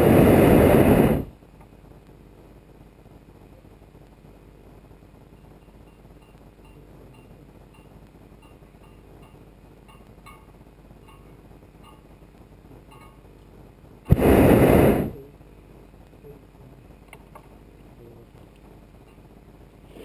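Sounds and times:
propane burner blast: 0.0 - 1.4, 14.1 - 15.4.

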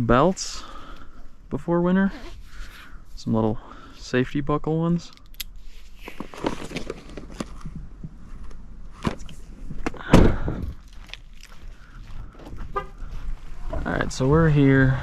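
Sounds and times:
loud thump: 9.8 - 10.7.

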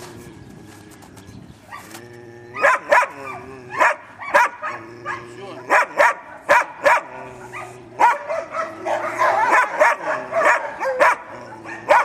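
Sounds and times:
dog barking: 2.6 - 12.0.

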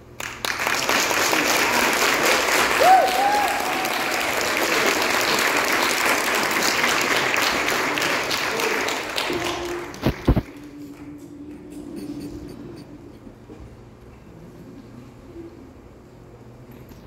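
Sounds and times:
congregation applauding: 0.0 - 11.1.

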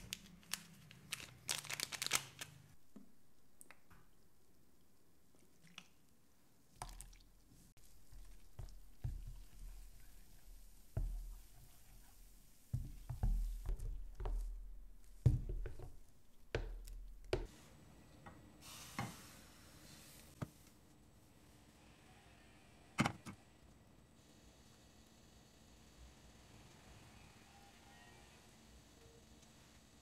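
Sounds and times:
whisk squishing batter: 7.8 - 17.4.

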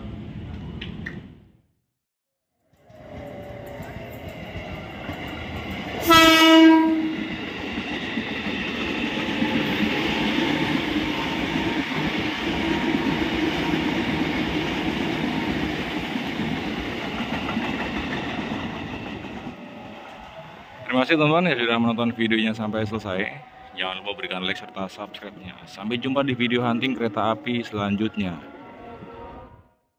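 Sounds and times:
train wheels clattering on rails: 2.7 - 20.4
train horn blast: 6.0 - 7.3.

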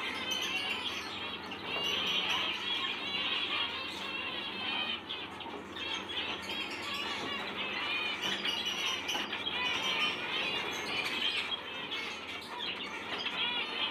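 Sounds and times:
finches chattering: 0.0 - 13.9.

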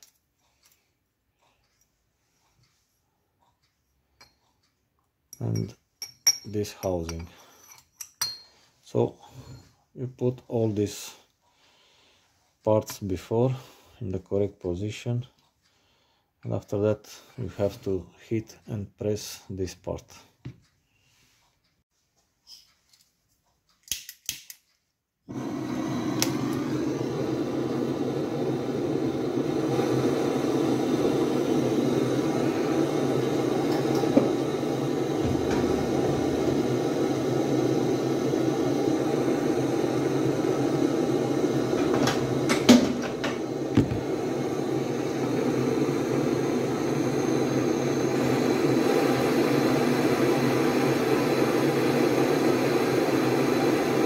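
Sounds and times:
torch igniter clicks: 23.8 - 24.7, 25.3 - 54.0
gas torch flame burning: 25.3 - 54.0.

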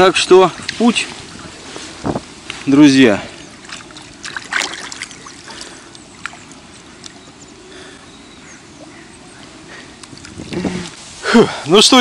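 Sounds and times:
water lapping at shoreline: 0.0 - 11.8.

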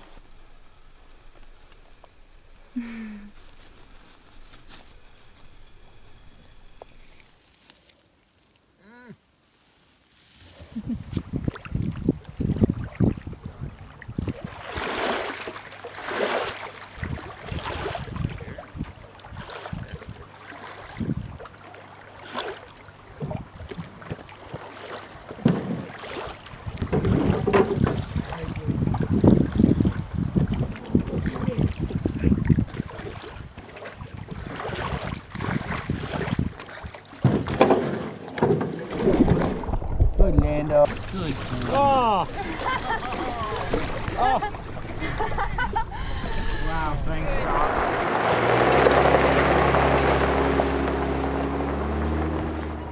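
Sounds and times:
water splashing against rocky shore: 14.1 - 52.9
low thuds: 38.5 - 41.6.

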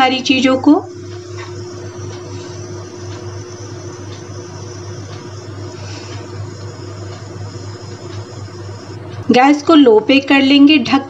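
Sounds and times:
low hum with faint hiss: 0.0 - 11.0.

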